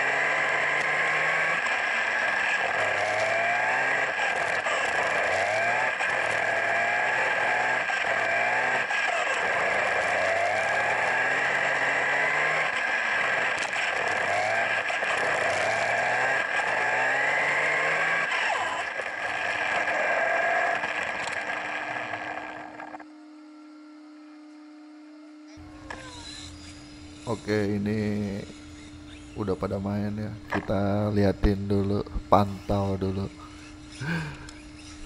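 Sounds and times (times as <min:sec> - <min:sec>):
electric motor whining: 0:00.0 - 0:35.0
tyres rushing on pavement: 0:00.8 - 0:23.0
faint steady hum: 0:22.9 - 0:35.0.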